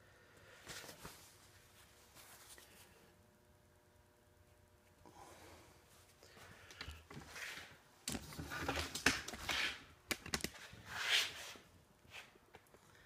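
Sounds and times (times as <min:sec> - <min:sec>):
cloth rubbing: 0:00.7 - 0:02.9.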